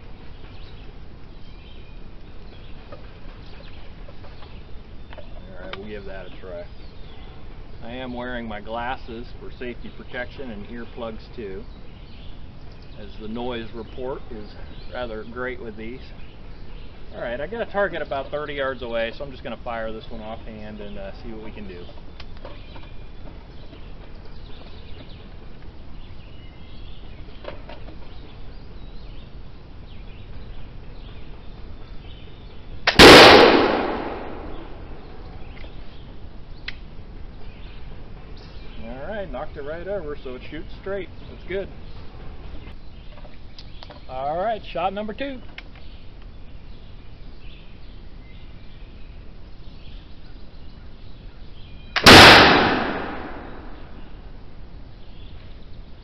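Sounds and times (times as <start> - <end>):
flintlock snap: 32.9 - 34.6, 52.0 - 53.8
musket blast: 32.9 - 34.9, 52.0 - 54.1.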